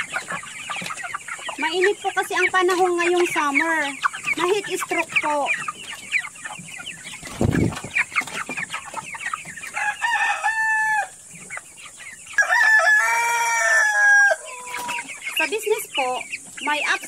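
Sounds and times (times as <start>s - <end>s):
chickens clucking and peeping: 0.0s - 17.0s
long held chicken calls: 3.7s - 16.8s.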